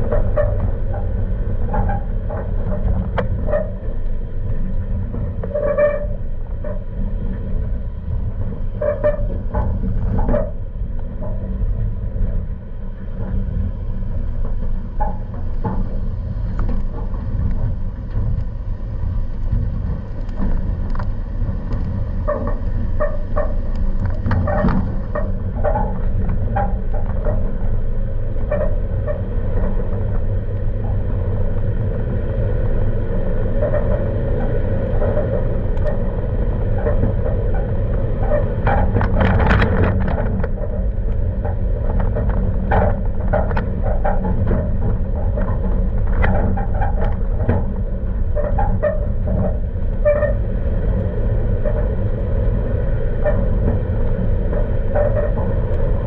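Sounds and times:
squeaks and rattles: 0.0 - 1.1, 5.4 - 6.8, 8.7 - 11.4, 20.2 - 29.8, 33.6 - 50.5, 53.2 - 56.0
truck engine and road rumble: 0.0 - 56.0.

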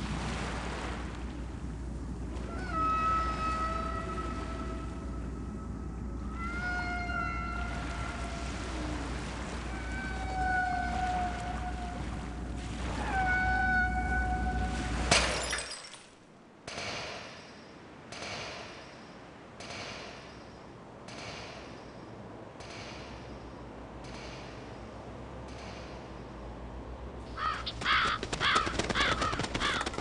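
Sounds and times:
long steady tones: 1.4 - 15.0
crow cawing: 27.3 - 30.0.

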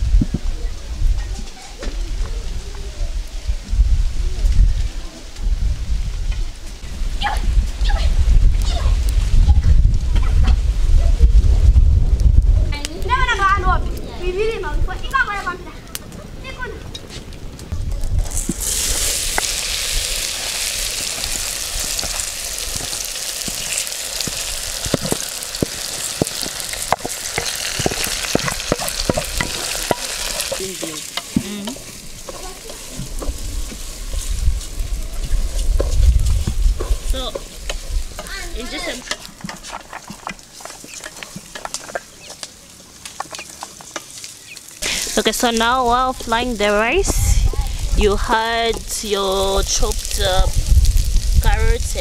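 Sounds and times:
rice sizzling in hot oil: 18.0 - 52.0
wooden spoon scraping bowl: 36.8 - 42.4.

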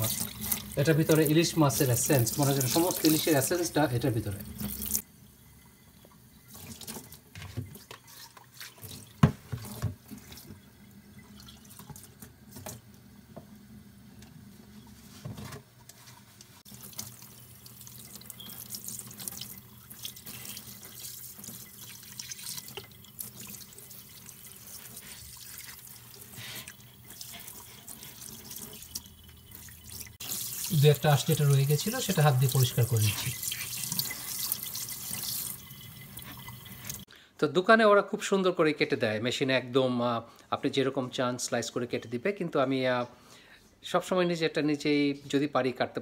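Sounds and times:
water splashing: 0.0 - 5.0
tap water running into sink: 0.0 - 13.6, 16.7 - 37.1.

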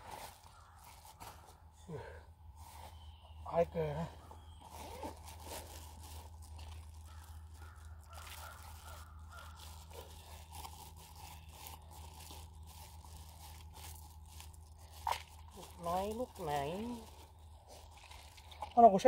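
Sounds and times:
steady low hum: 0.0 - 19.0
hands rustling and tearing: 4.6 - 18.6.

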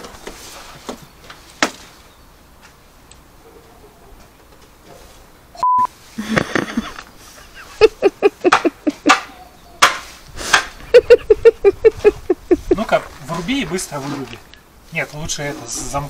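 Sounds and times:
censor bleep: 5.6 - 5.9.

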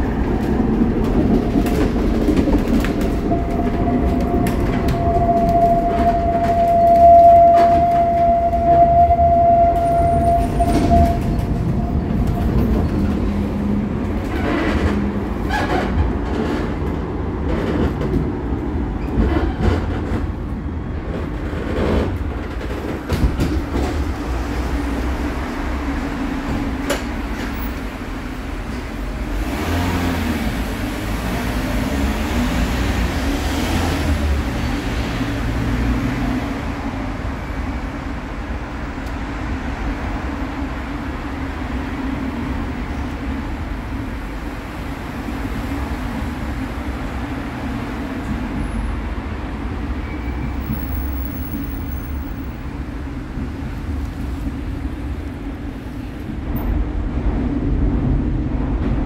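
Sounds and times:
wheels rumbling on rails: 0.0 - 59.0
clacks over track joints: 0.1 - 8.3, 10.6 - 24.4.

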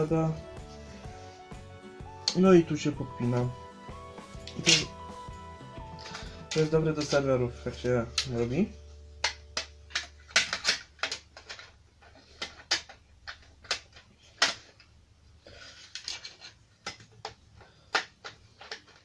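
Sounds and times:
computer parts clicking and knocking: 9.2 - 14.9, 16.0 - 19.0.

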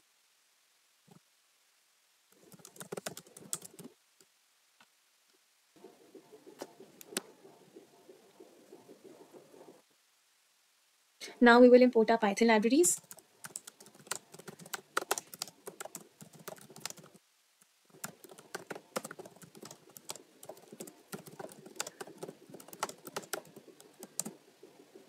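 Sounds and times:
computer keyboard typing: 2.4 - 3.9, 13.0 - 17.2, 17.9 - 24.4.

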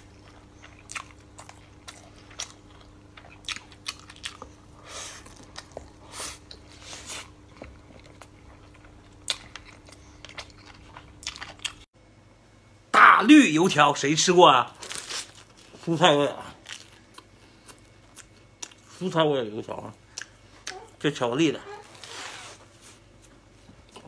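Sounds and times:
person chewing food: 0.0 - 11.9, 16.6 - 19.0, 20.1 - 20.9.

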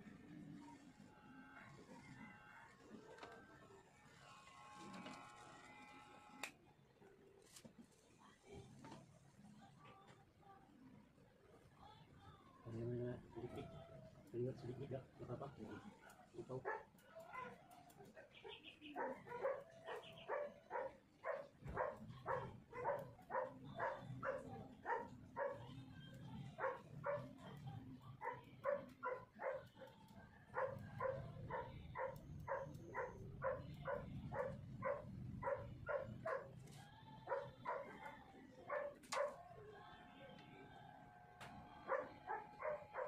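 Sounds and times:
dog barking: 16.0 - 17.7, 18.5 - 25.8, 26.6 - 27.6, 28.2 - 36.6, 37.3 - 39.4, 41.8 - 43.0.

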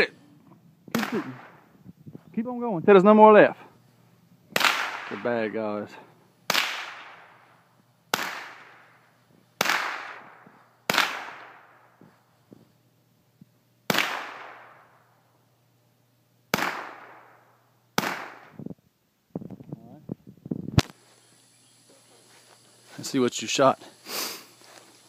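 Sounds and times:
rifle shots with echo: 0.9 - 1.7, 4.6 - 5.4, 6.5 - 7.5, 8.1 - 9.0, 9.6 - 12.0, 13.9 - 15.0, 16.5 - 18.5.

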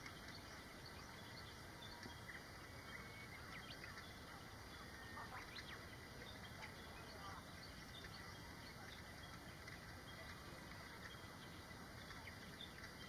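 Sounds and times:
faint bird chirping: 0.0 - 13.0
outdoor background hiss: 0.0 - 13.0.

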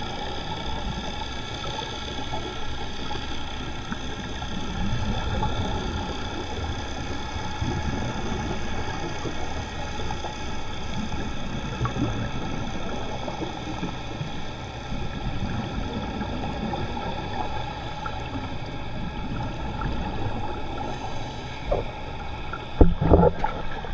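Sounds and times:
faint constant tones: 0.0 - 23.9
muffled underwater rumble and hiss: 0.0 - 23.9.

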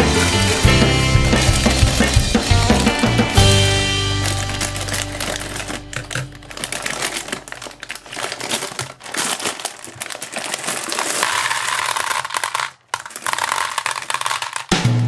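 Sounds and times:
gumballs rattling into plastic tub: 0.0 - 14.9
plastic bag crinkling: 0.3 - 14.8.

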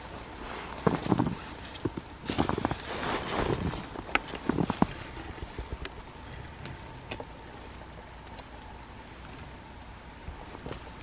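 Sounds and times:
footsteps in snow: 0.0 - 5.0
brushing through snowy branches: 0.0 - 5.6.

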